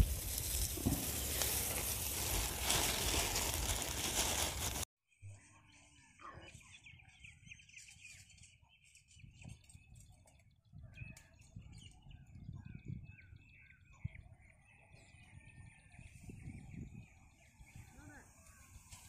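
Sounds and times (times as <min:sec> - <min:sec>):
small birds chirping: 0:05.4 - 0:19.0.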